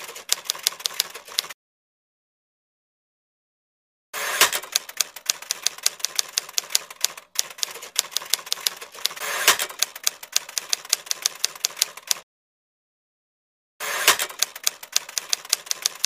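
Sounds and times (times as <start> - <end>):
typewriter keystroke clicks: 0.0 - 1.6, 4.4 - 12.2, 14.1 - 16.0.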